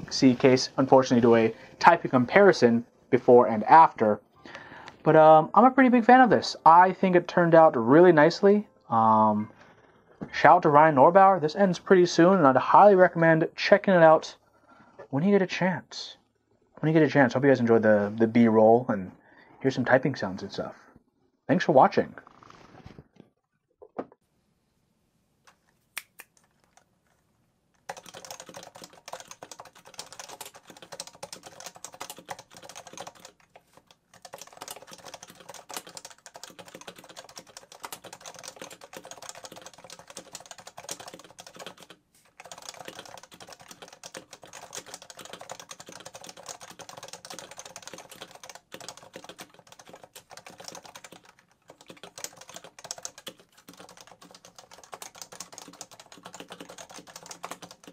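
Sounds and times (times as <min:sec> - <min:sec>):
keyboard typing: 0:27.8 - 0:57.9.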